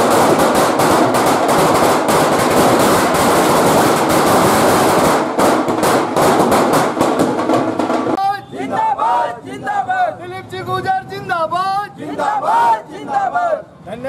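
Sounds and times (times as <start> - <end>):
firecrackers bursting: 0.0 - 8.2.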